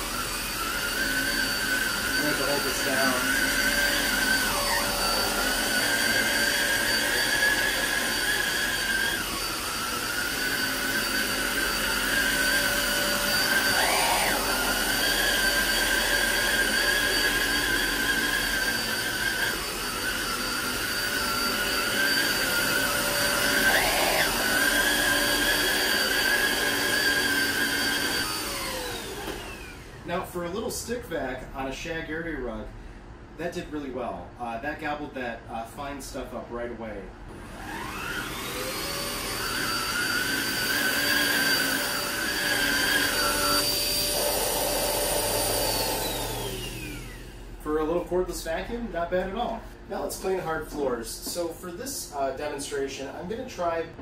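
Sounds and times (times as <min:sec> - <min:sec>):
vacuum cleaner motor whine: 0:00.0 - 0:30.3, 0:37.3 - 0:48.0.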